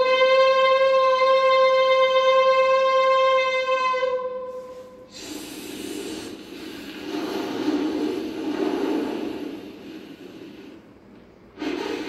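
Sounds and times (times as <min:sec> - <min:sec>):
man imitating train horn: 0:00.0 - 0:05.2
man imitating train rushing: 0:05.0 - 0:10.8.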